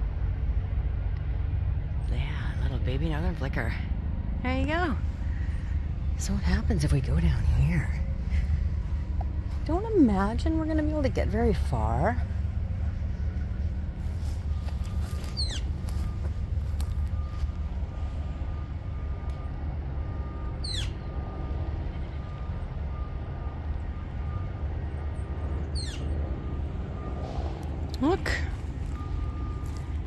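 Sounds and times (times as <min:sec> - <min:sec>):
low background rumble: 0:00.0 - 0:30.0
bird calling: 0:14.4 - 0:17.4, 0:20.4 - 0:21.2, 0:25.6 - 0:26.2.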